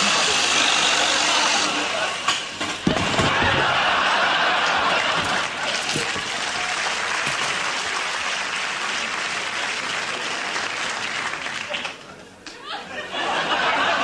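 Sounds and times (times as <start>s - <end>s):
audience applauding: 3.6s - 12.2s.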